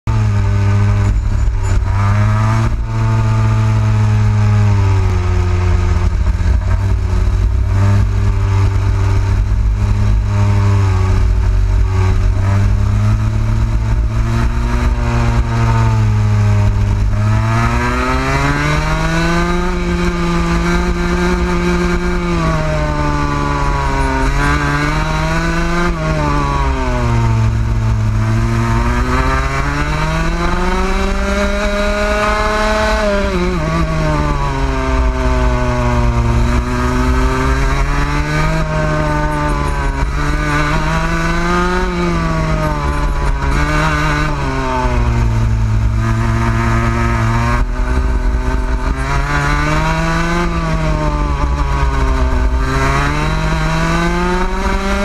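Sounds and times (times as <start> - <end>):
kart engine revving: 0.1 - 55.0.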